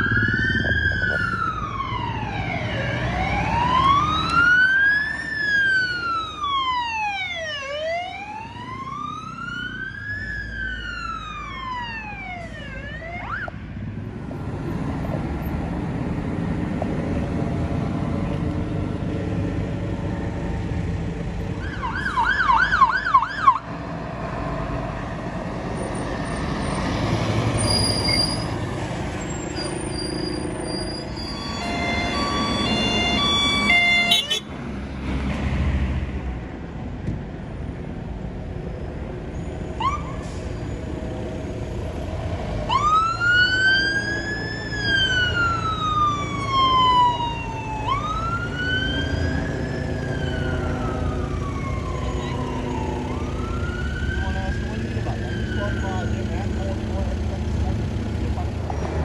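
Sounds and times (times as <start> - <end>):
siren wailing: 0.0 - 13.6, 21.6 - 23.6, 31.3 - 34.4, 42.7 - 56.3
fire engines driving past: 0.0 - 59.0
fast yelp siren: 31.3 - 34.4.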